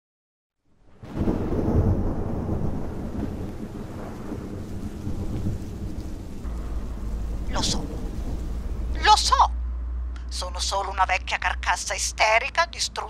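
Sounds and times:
deep steady rumble: 1.9 - 12.6.

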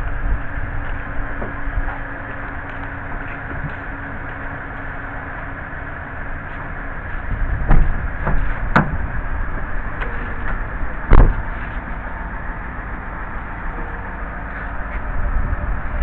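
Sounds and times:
car door knocks: 7.7 - 9.0
car door thud: 11.1 - 11.5.

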